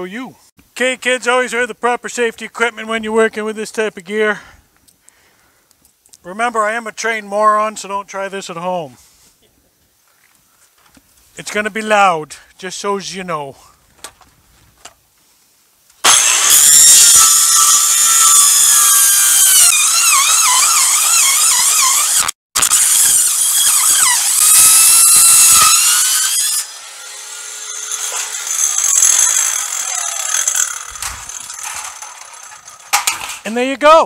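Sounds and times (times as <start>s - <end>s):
saw blade winding down: 16.0s - 33.5s
circular saw screeching through metal: 16.1s - 33.3s.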